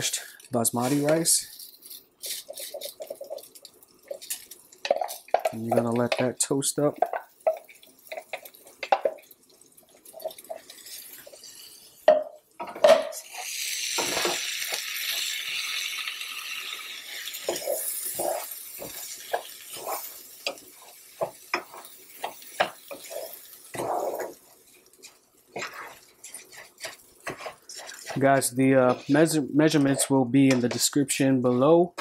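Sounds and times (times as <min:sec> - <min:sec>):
spatula scraping pan: 0:00.8 - 0:06.3, 0:17.0 - 0:32.0
butter and rice hissing: 0:13.2 - 0:30.1.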